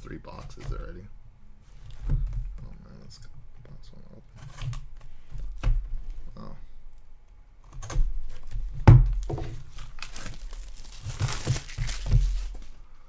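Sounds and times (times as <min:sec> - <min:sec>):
shrink-wrap crinkling: 0:09.2 - 0:12.8.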